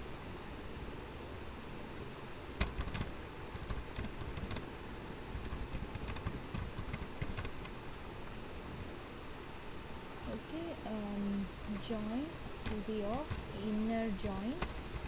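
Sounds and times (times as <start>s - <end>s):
low background hiss: 0.0s - 15.0s
computer keyboard typing: 2.6s - 4.6s, 5.3s - 7.8s, 11.4s - 15.0s.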